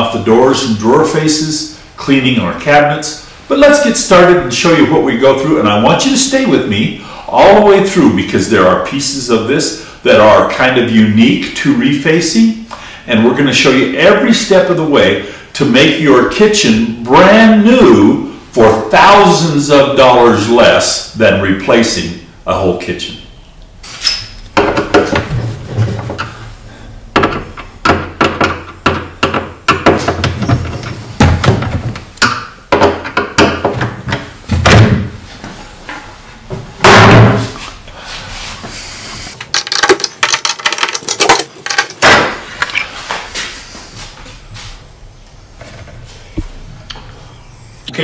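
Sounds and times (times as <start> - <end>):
clicks and knocks of hinges: 27.2 - 34.9, 39.4 - 42.9.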